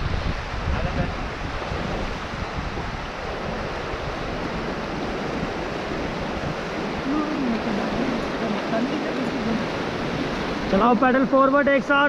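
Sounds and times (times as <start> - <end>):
river rushing: 0.0 - 12.0
wind buffeting microphone: 0.0 - 12.0
faint voice: 7.0 - 8.0.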